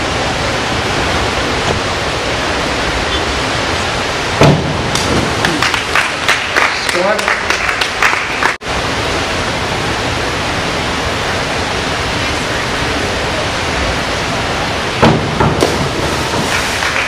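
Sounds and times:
indoor pool hall rushing noise: 0.0s - 17.0s
diver splashing into water: 15.0s - 17.0s.

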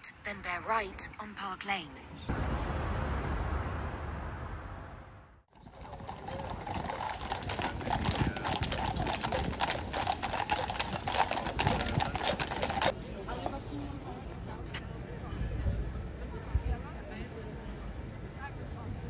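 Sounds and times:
low rushing noise: 2.2s - 5.5s
horses' hooves clip-clopping on road: 5.5s - 13.6s.

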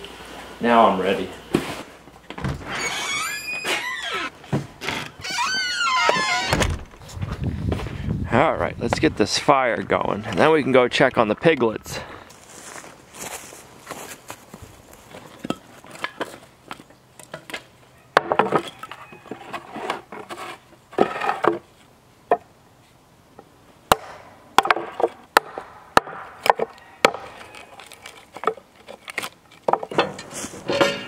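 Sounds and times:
wood pieces knocking: 18.2s - 20.4s, 24.6s - 31.0s
hatchet chopping wood: 23.9s - 27.6s.

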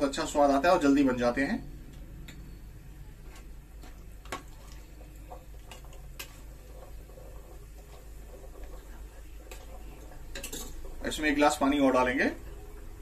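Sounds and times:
utensil tapping metal pot: 3.3s - 11.4s.

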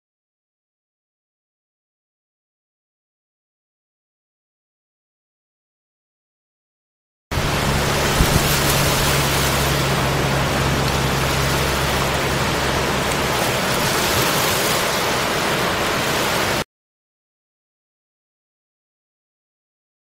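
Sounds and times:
low hum: 7.3s - 16.6s.

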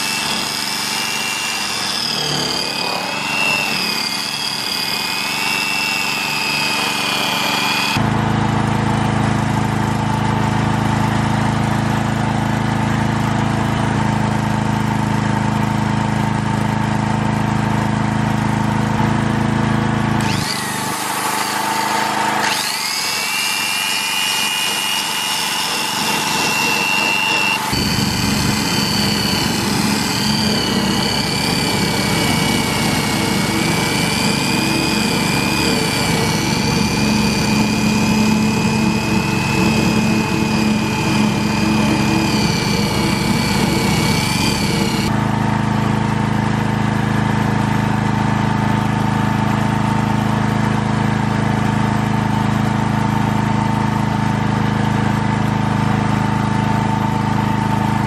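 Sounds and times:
electric polisher whining: 0.0s - 8.2s, 20.0s - 45.4s
low drone: 26.2s - 45.1s.

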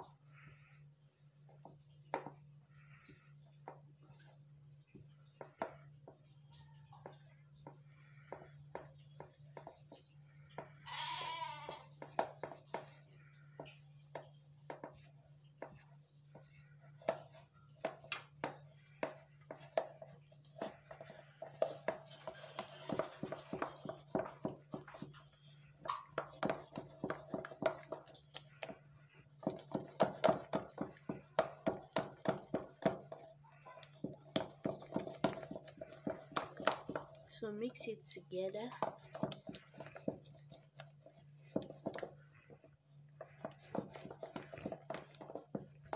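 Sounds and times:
wooden utensil beating in plastic bowl: 11.7s - 45.9s.

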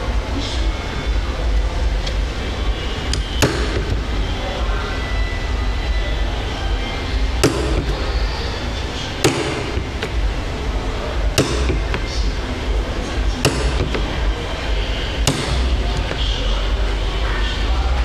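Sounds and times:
hammer striking shoe material: 3.2s - 4.1s, 7.4s - 8.1s, 9.2s - 10.2s, 11.3s - 12.4s, 13.3s - 14.3s, 15.2s - 16.2s.

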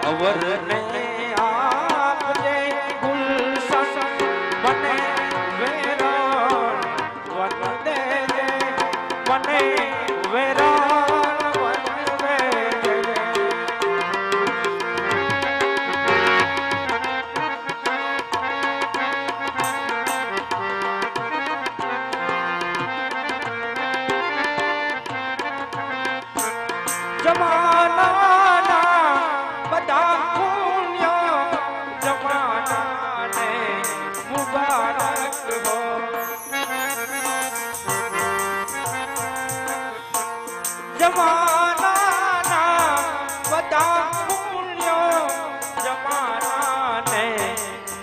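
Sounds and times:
rhythmic percussion: 0.0s - 30.7s, 31.4s - 48.0s
melody of held notes: 19.4s - 20.6s, 32.0s - 48.0s
tabla strokes: 26.3s - 28.2s, 32.0s - 48.0s
person singing: 32.0s - 48.0s.

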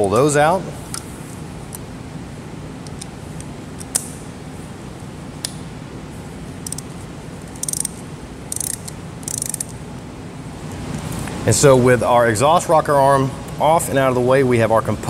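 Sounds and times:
steady low hum: 0.0s - 15.0s
ratchet pawl clicks: 7.6s - 9.8s.

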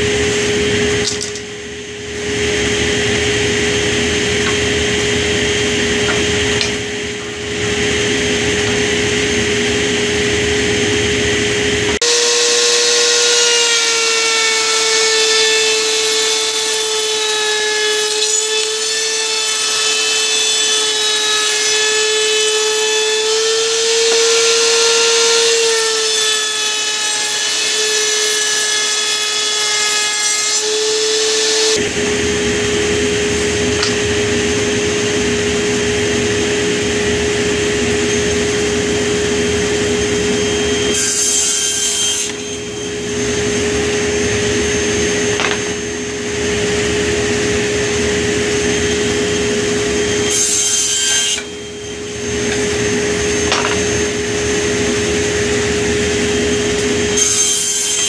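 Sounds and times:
router table whining: 0.0s - 58.0s
table saw cutting wood: 0.0s - 58.0s.

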